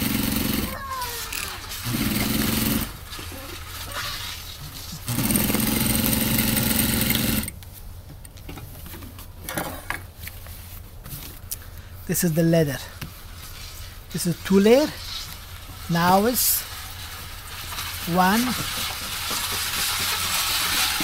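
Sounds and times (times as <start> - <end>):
sewing machine humming: 0.0 - 3.1, 5.1 - 7.5.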